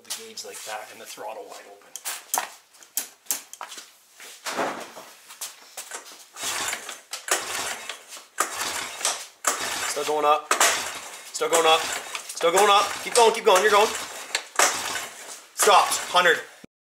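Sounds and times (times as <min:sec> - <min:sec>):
recoil starter cranking engine: 0:06.4 - 0:16.5.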